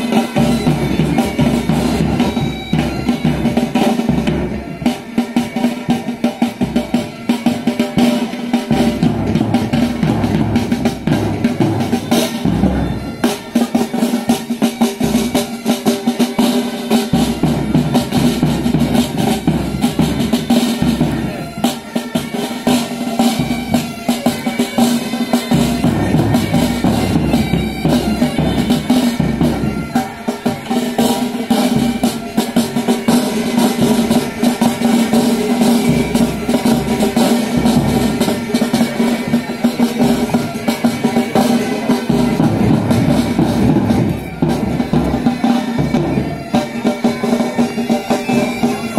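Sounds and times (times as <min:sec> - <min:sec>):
bagpipes droning: 0:00.0 - 0:48.9
snare drums: 0:00.0 - 0:48.9.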